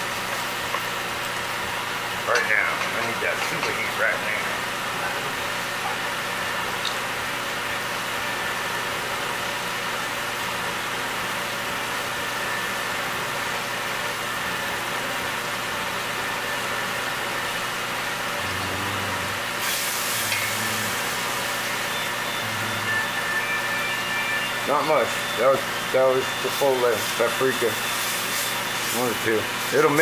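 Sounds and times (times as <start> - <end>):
kitchen exhaust fan hum: 0.0 - 30.0
meat sizzling in a pot: 19.4 - 22.2, 25.6 - 30.0.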